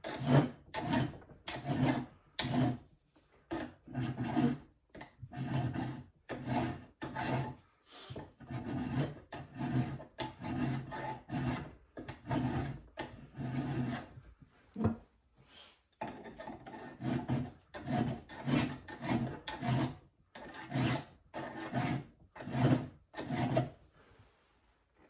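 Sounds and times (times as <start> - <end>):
hand file rasping on brass: 0.0 - 2.9, 3.5 - 14.2, 16.0 - 23.8.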